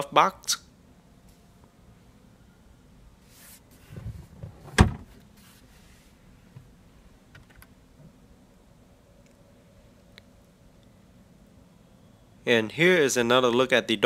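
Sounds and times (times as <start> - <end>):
glove box lid thud: 4.7 - 5.1.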